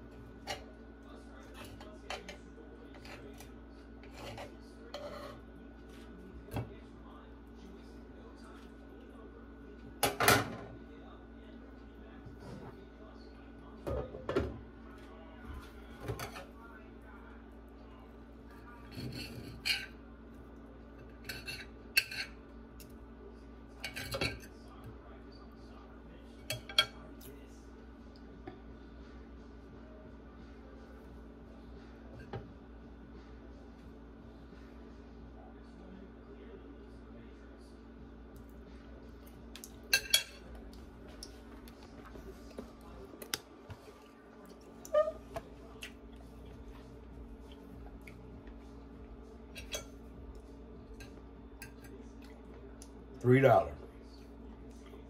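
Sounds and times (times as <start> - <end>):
steady low hum: 0.0 - 55.0
knife and fork scraping plate: 1.5 - 5.5, 18.8 - 20.0, 21.1 - 22.4
cutlery clinking on ceramic plate: 39.9 - 40.5.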